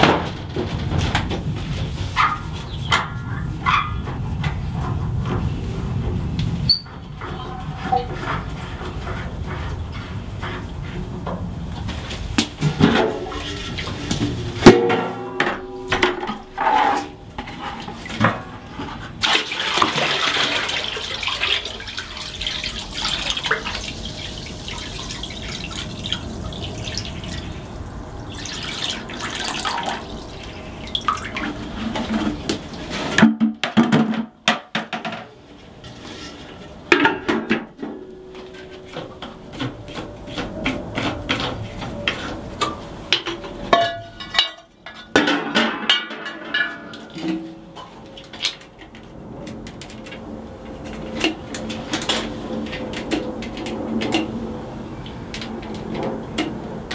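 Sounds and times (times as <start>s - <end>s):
metallic clanks and knocks: 12.4s - 19.2s, 31.4s - 49.0s
water pouring into tank: 19.2s - 31.8s.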